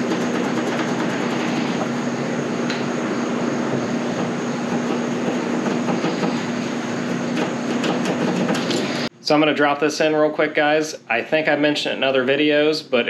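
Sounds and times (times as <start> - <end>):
mechanical drone: 0.0 - 9.1.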